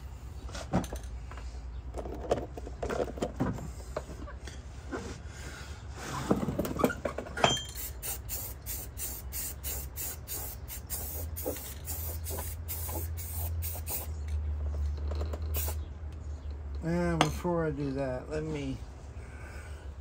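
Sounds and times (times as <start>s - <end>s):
short squeak: 6.8s - 7.9s
steady low hum: 7.6s - 20.0s.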